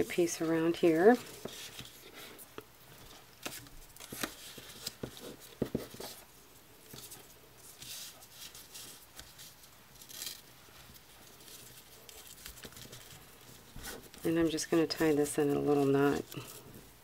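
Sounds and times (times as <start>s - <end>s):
ribbon and paper rubbing: 7.8s - 16.8s.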